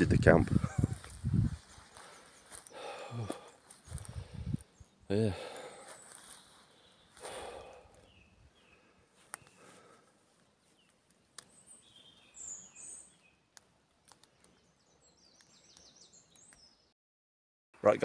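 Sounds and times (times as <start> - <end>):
high bird chirps: 10.6 - 13.6, 14.4 - 16.9
faint clicks: 13.5 - 14.6.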